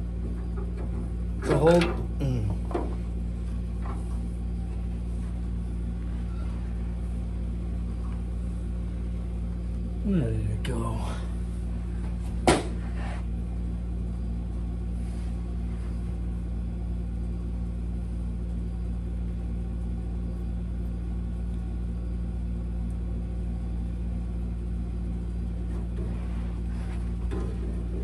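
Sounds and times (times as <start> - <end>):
steady low hum: 0.0 - 28.0.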